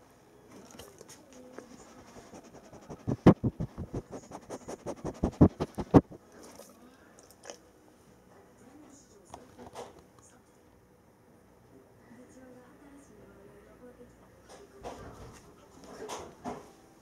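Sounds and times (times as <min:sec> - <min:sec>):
dog sniffing: 0:01.4 - 0:06.2.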